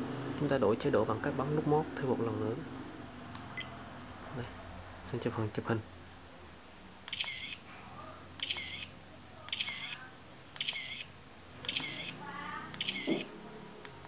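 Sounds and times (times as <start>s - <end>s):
electronic camera shutter click: 7.1s - 7.6s, 8.4s - 8.9s, 9.5s - 10.0s, 10.6s - 13.3s.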